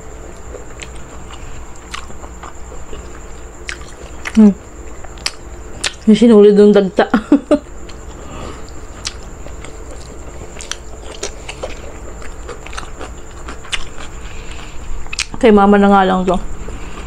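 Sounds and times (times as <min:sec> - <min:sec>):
person chewing: 0:00.2 - 0:06.0, 0:07.8 - 0:15.4.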